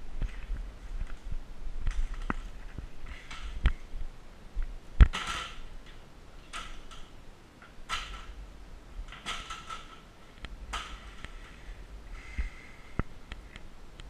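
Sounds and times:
rustling: 0.0s - 14.0s
metal step ladder knocking: 9.1s - 10.0s, 10.7s - 11.2s.

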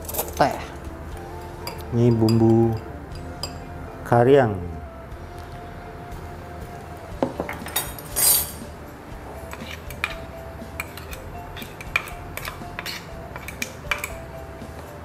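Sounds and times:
spoon scrape: 9.5s - 10.1s, 10.8s - 14.0s
metal spoon clinking on plastic: 10.8s - 14.2s.

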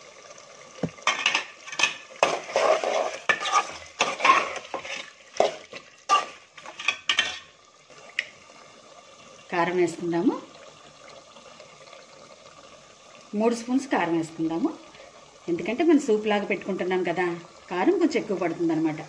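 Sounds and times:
metal spoon scraping pot: 1.1s - 7.5s.

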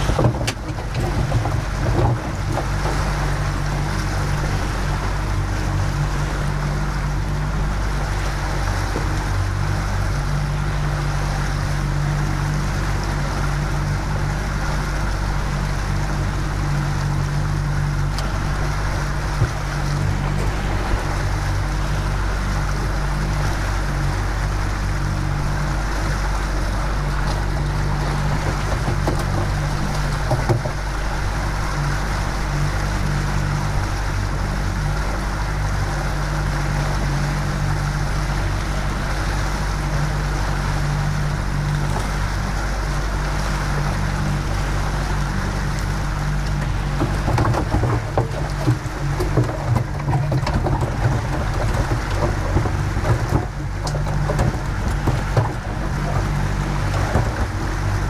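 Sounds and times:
knocks and rattles: 0.0s - 3.1s, 27.4s - 30.8s, 46.5s - 58.0s
outboard motor running: 0.0s - 58.0s
water rushing past hull: 0.0s - 58.0s
wind: 0.0s - 58.0s.

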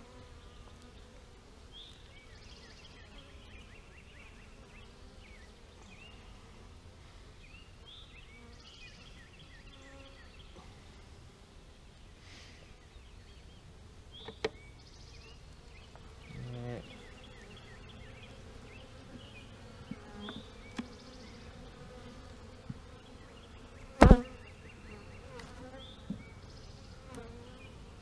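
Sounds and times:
bees buzzing: 15.1s - 28.0s.

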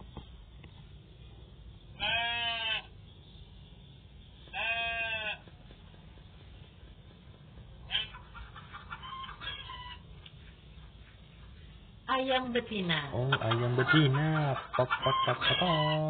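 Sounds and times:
sheep bleating: 2.0s - 2.9s, 4.5s - 5.4s.

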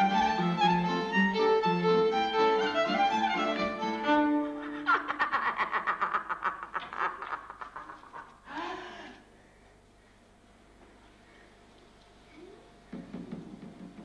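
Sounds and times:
violin melody: 0.0s - 4.9s
woman laughing: 4.6s - 9.1s.

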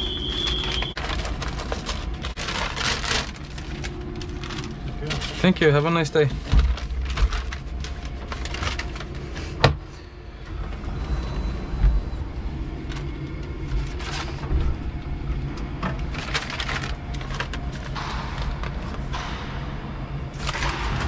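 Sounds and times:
paper rustling: 0.0s - 9.6s, 12.7s - 14.8s, 16.0s - 18.7s
steady low hum: 0.0s - 21.0s.

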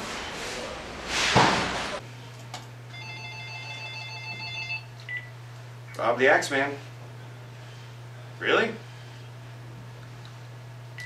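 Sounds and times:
phone electronic ringtone: 2.9s - 4.9s.

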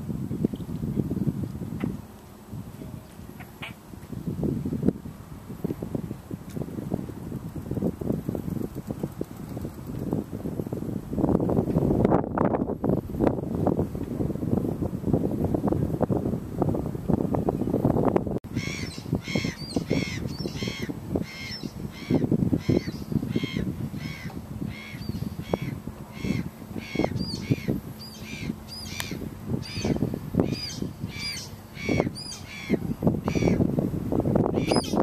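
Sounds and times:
wind buffeting microphone: 0.0s - 35.0s
bird calling: 3.4s - 3.8s, 18.5s - 33.6s, 34.6s - 35.0s.

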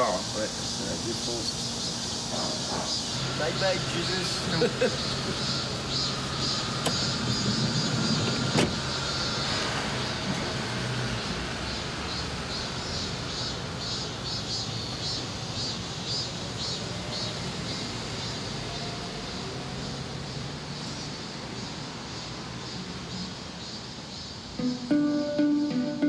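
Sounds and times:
minivan driving away: 0.0s - 23.7s, 24.5s - 26.0s
low traffic rumble: 0.0s - 26.0s
car passing: 2.3s - 13.8s
high chirping: 22.1s - 26.0s.

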